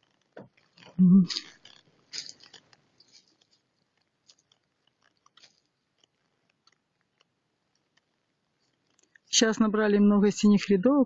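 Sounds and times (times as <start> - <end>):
footsteps on dry leaves: 2.1 - 4.5.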